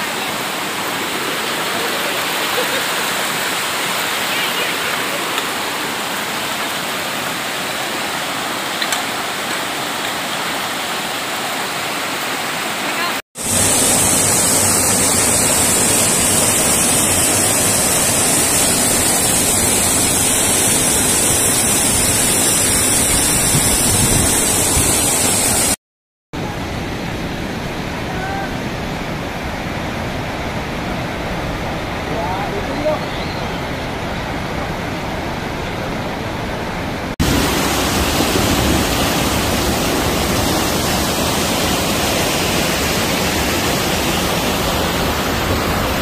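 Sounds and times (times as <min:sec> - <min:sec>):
stream rushing over boulders: 0:00.0 - 0:25.8, 0:26.4 - 0:46.0
small cascade: 0:12.7 - 0:25.8.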